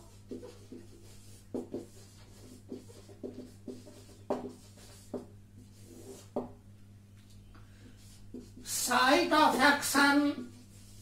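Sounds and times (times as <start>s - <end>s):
marker squeaking on whiteboard: 0.1s - 6.5s.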